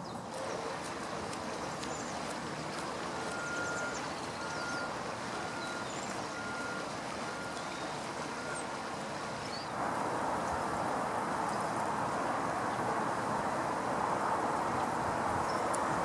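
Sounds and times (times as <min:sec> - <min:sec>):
traffic noise: 0:00.0 - 0:16.0
backup alarm beeping: 0:03.3 - 0:08.6.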